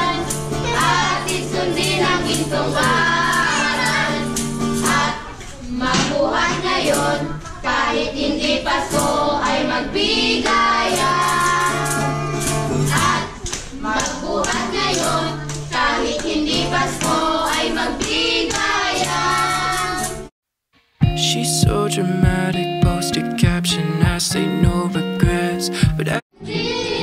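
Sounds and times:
children singing: 0.0s - 20.1s, 26.4s - 27.0s
acoustic guitar strumming: 21.0s - 26.2s.

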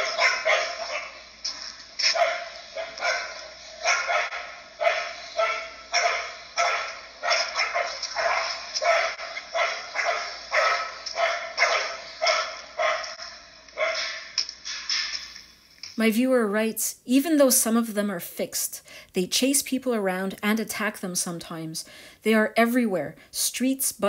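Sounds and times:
dogs barking: 0.0s - 14.4s.

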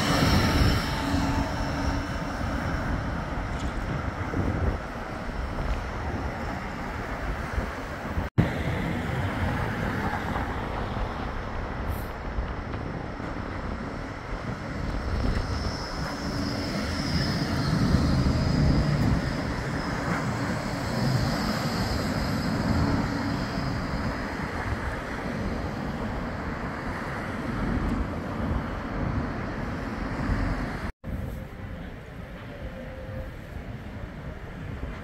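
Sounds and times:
tram passing with rumble: 0.0s - 35.0s
wind rumble on microphone: 0.0s - 35.0s.

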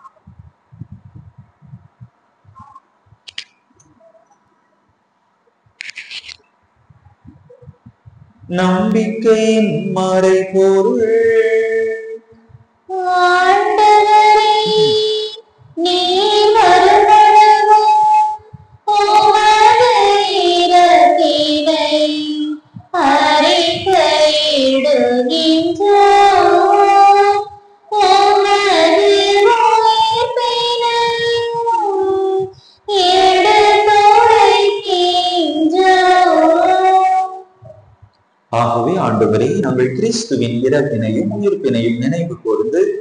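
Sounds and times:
voices singing a liturgical melody: 8.5s - 18.3s, 18.9s - 37.8s, 38.5s - 43.0s.

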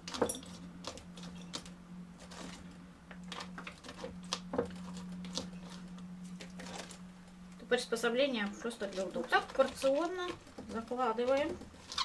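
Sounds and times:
steady low hum: 0.0s - 12.0s
cabbage rustling and crackling: 3.2s - 7.1s, 8.3s - 12.0s.

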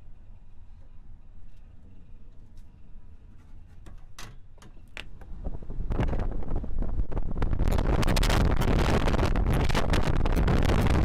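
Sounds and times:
wind buffeting microphone: 5.1s - 11.0s.

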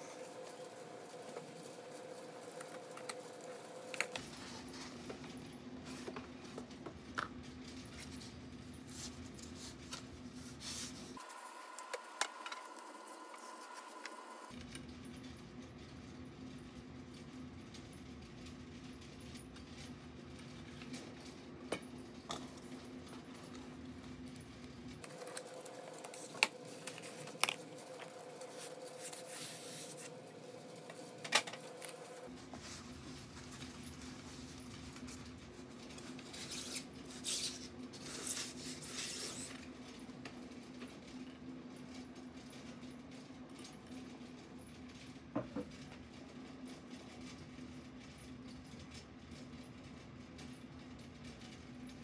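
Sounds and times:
scraping and rustling: 18.3s - 39.8s.

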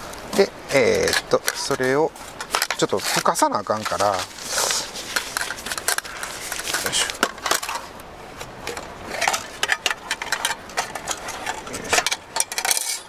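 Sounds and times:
mesh pouch rustling: 0.8s - 8.0s
metal tin clicks and clinks: 8.6s - 13.0s.

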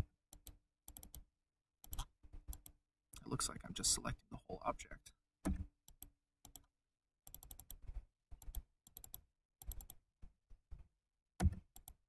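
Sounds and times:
computer keyboard keys clicking: 7.3s - 7.8s.

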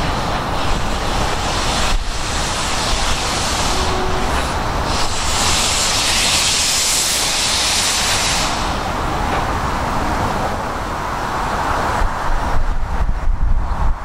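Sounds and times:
steam locomotive hissing steam: 0.0s - 10.4s.

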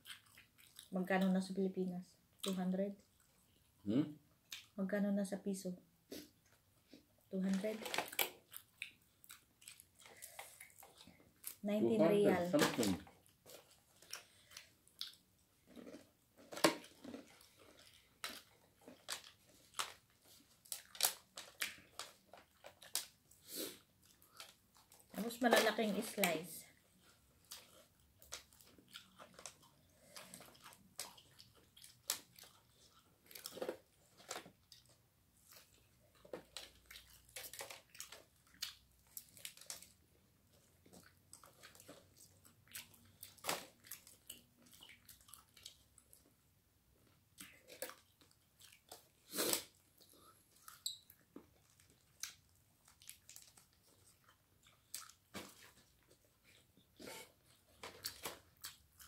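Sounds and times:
chewing crispy fried chicken: 0.0s - 1.6s, 2.3s - 4.8s, 6.2s - 11.7s, 12.8s - 59.0s
crisp coating crackling when torn: 7.4s - 8.4s.

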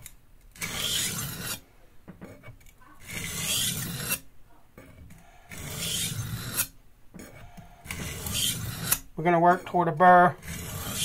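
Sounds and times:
knife scraping on sharpening stone: 0.6s - 1.6s, 2.3s - 9.8s, 10.4s - 11.0s.

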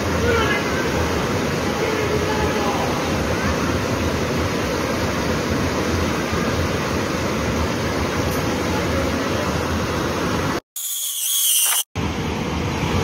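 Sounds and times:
rushing river floodwater: 0.0s - 10.6s.

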